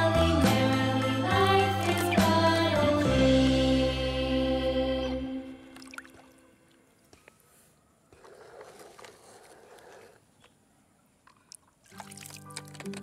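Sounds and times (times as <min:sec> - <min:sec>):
shallow water swishing: 0:05.7 - 0:10.3.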